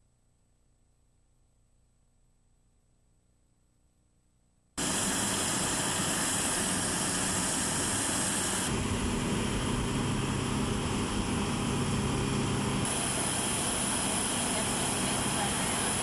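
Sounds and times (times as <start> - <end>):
jet turbine noise: 4.8 - 16.0.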